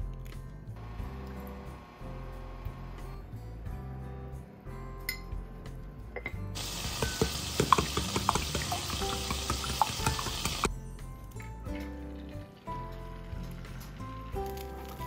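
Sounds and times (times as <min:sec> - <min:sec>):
eggs beaten in glass bowl: 0:06.6 - 0:10.7.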